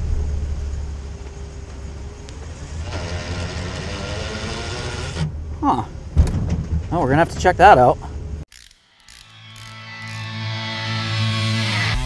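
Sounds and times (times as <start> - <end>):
engine and road rumble: 0.0 - 12.0
transfer case grinding: 2.3 - 5.5.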